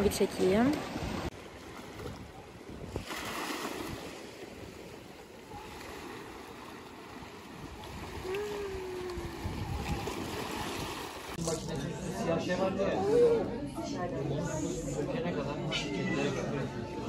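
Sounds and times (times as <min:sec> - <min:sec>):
waves lapping: 0:00.0 - 0:11.7.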